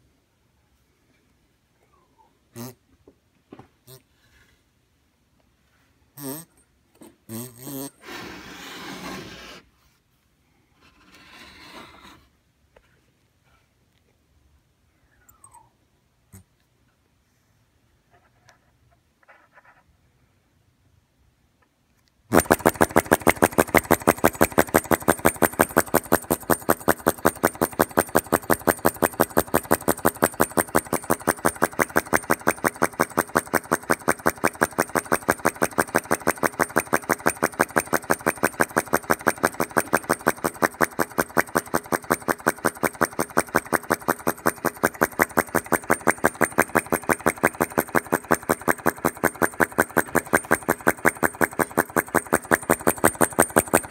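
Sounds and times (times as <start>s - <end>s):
small engine rapid clicks: 6.2s - 6.6s, 22.3s - 53.9s.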